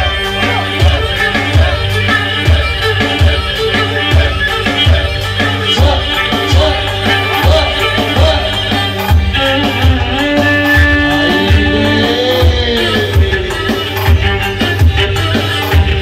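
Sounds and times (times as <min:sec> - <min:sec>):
dance music lead melody: 0:00.0 - 0:16.0
heavy drum beat: 0:00.0 - 0:16.0.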